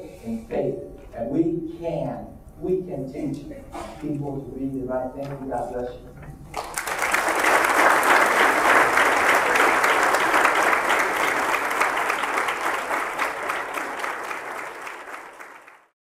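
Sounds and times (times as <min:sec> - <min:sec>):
audience applauding: 0:06.5 - 0:15.9.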